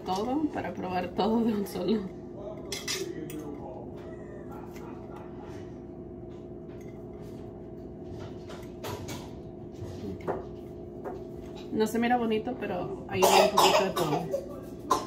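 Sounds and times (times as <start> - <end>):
steady low hum: 0.0 - 15.0
utensils clinking on dishes: 2.4 - 3.8.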